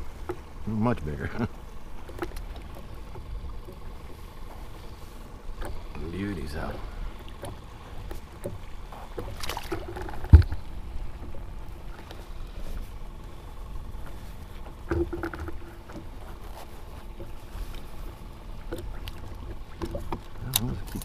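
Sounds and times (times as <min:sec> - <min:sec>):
hollow thump: 0:09.7 - 0:10.6, 0:14.9 - 0:16.0.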